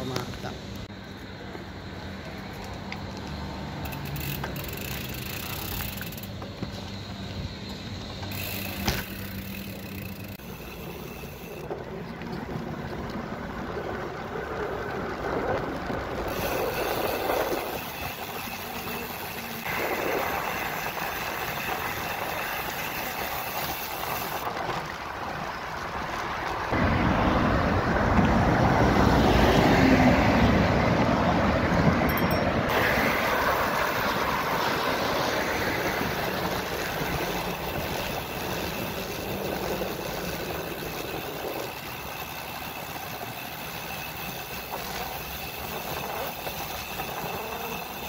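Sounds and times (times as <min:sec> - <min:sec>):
road traffic: 0:00.0 - 0:48.0
wind noise on microphone: 0:11.6 - 0:48.0.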